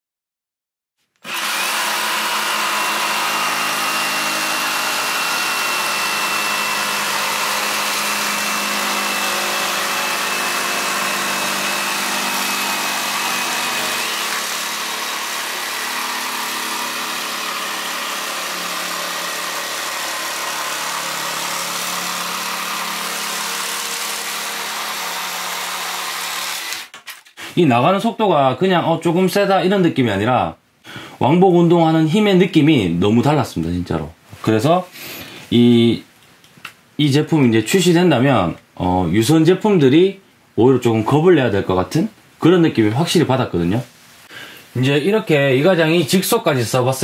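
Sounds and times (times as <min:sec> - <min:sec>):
jigsaw cutting plywood: 0:01.2 - 0:27.4.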